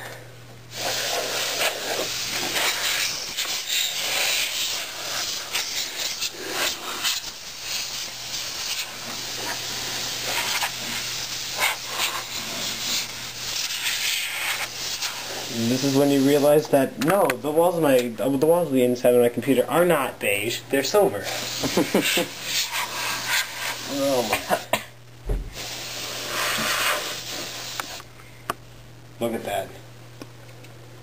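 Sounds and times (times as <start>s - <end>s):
compressed air duster hissing: 0.7s - 16.7s, 21.2s - 28.1s.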